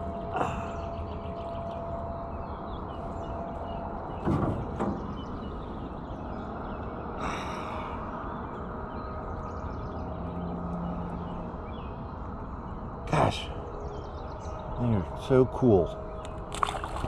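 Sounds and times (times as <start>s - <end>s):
outdoor background noise: 0.0s - 17.0s
fish splashing at the surface: 16.5s - 17.0s.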